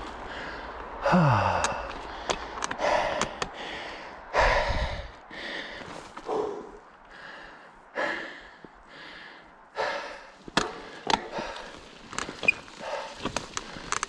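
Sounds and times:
man breathing heavily: 0.0 - 14.0
man groaning: 1.0 - 1.9.

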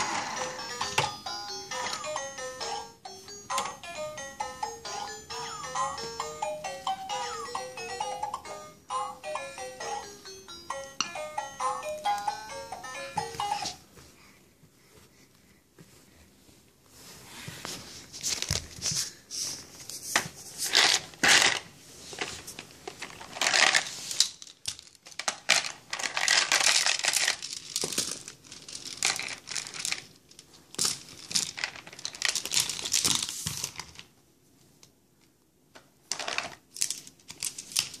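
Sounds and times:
plastic toys rattling in basket: 20.6 - 34.0, 36.1 - 38.0.

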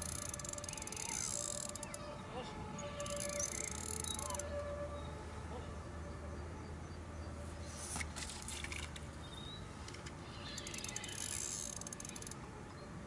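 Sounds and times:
fishing reel clicking: 0.0 - 2.1, 3.0 - 4.5, 9.9 - 12.4.

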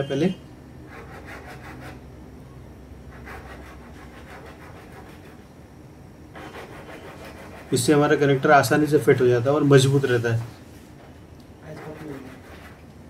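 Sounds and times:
scraper blade scraping plastic: 11.7 - 12.8.

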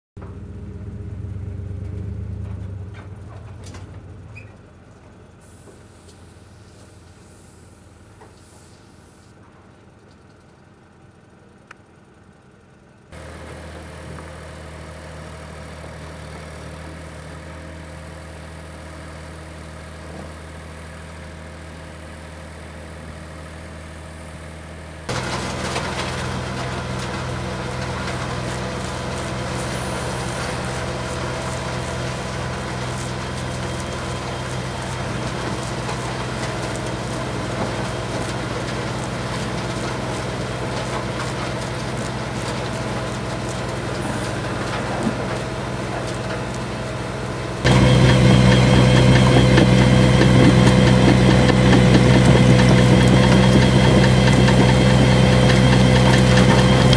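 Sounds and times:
vehicle engine idling: 0.2 - 56.9.

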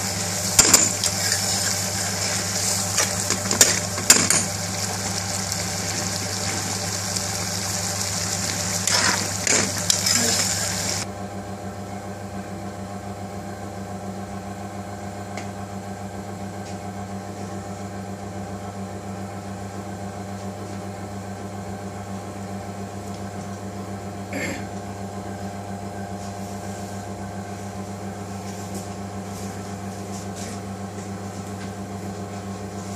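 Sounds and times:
curry sizzling in a pan: 0.0 - 11.1
low mechanical hum: 0.0 - 32.9.

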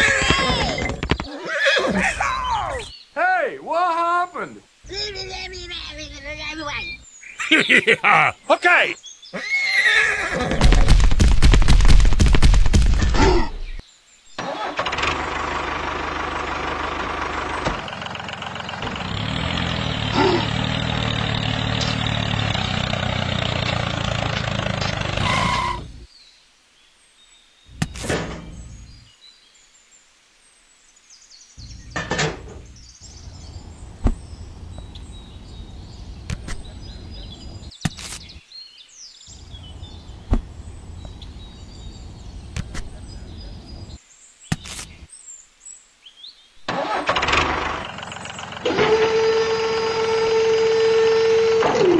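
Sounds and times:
tractor engine running: 14.4 - 26.0, 31.6 - 37.7, 46.7 - 51.9.

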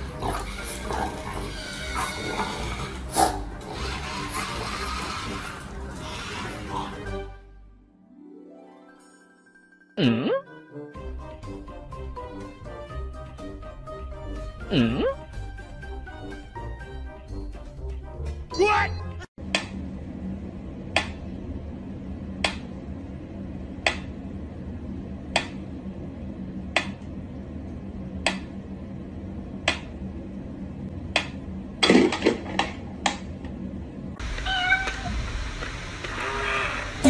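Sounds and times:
cat meowing: 34.4 - 35.2.

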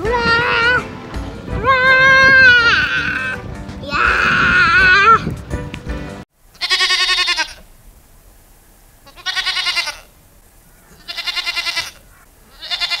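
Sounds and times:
goat-like bleating calls: 1.6 - 5.2, 6.5 - 7.7, 9.0 - 10.2, 10.9 - 13.0.

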